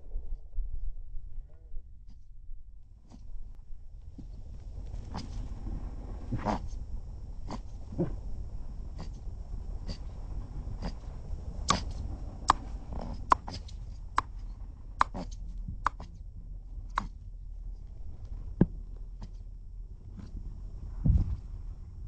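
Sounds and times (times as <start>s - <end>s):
mole rat clicking: 15.0s - 16.2s, 16.9s - 17.2s.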